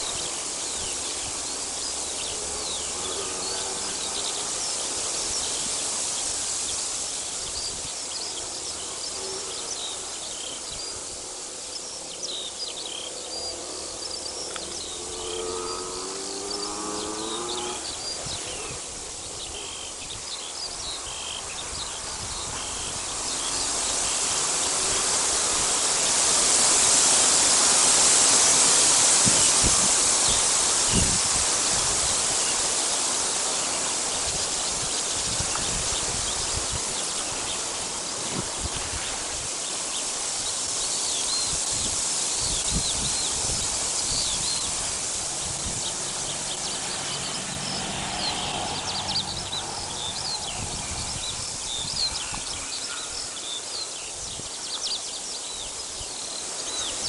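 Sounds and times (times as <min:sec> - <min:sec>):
rushing noise: 0:00.0 - 0:54.3
songbirds chirping: 0:00.0 - 0:57.0
low-pitched animal call: 0:14.6 - 0:18.8.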